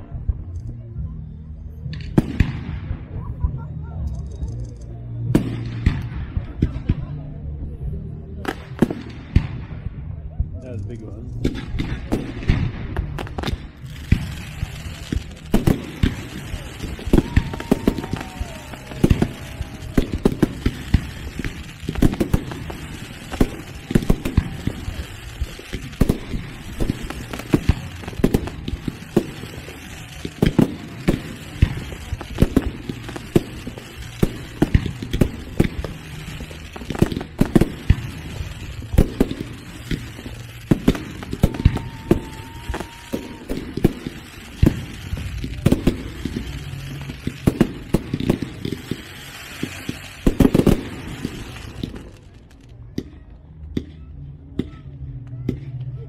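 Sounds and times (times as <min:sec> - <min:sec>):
fireworks bursting: 0:01.8 - 0:07.4, 0:08.4 - 0:55.8
firework whistling: 0:11.4 - 0:52.4.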